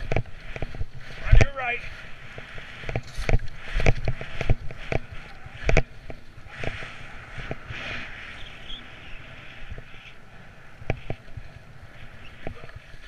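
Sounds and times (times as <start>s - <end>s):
skis knocking on snow bumps: 0.0s - 7.8s
skis scraping on packed snow: 0.0s - 13.0s.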